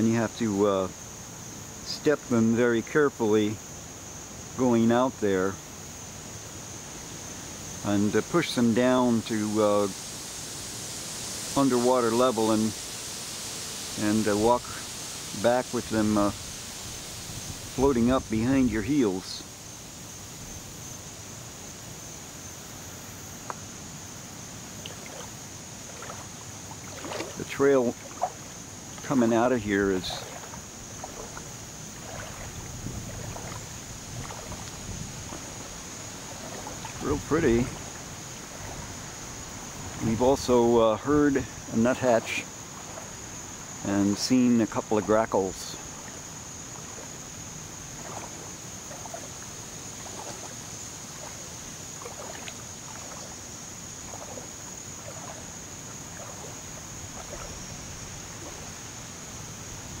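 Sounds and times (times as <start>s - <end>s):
insects droning: 0.0s - 60.0s
feet sloshing through water: 24.5s - 60.0s.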